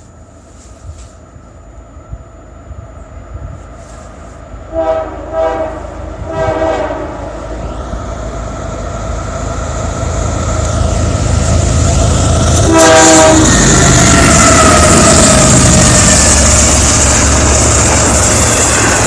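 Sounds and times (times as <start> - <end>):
locomotive rumble: 0.0 - 19.0
train horn blasts: 4.7 - 7.5, 12.5 - 15.3.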